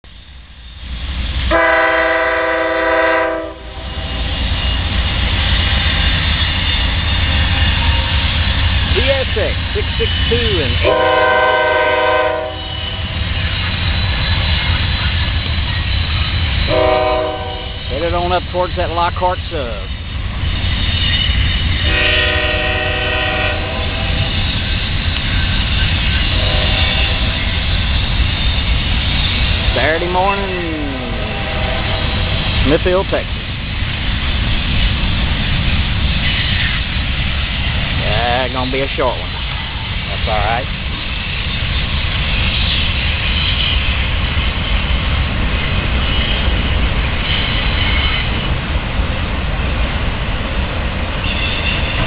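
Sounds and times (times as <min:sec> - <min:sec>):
train engine and rolling rumble: 0:00.0 - 0:52.0
locomotive air horn: 0:01.5 - 0:03.9, 0:10.8 - 0:13.0, 0:16.7 - 0:17.8, 0:21.8 - 0:24.3, 0:26.3 - 0:27.4, 0:31.0 - 0:32.2.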